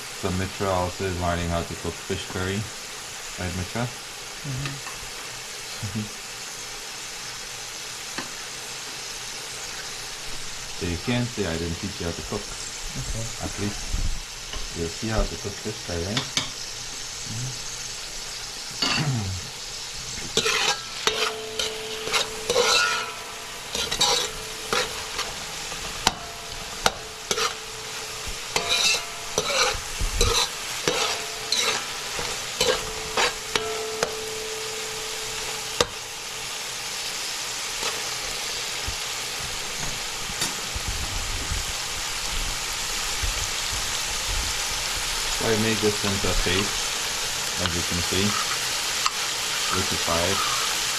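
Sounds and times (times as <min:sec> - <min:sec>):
vegetables sizzling in oil: 0:00.0 - 0:50.9
spoon scraping metal pan: 0:18.7 - 0:19.2, 0:20.1 - 0:36.1, 0:47.6 - 0:50.8.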